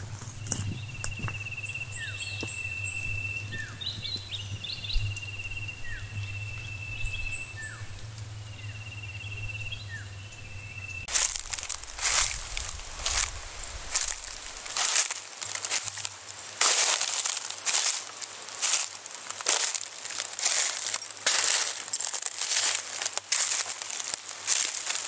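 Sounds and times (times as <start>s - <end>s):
footsteps crunching dry leaves: 0.0s - 4.9s, 11.0s - 25.0s
trilled bird call: 0.4s - 15.0s.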